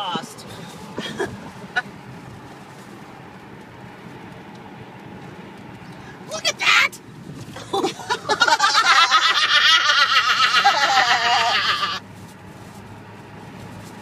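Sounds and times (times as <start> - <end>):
car cabin hum: 0.0 - 14.0
hearty laughter: 7.6 - 12.0.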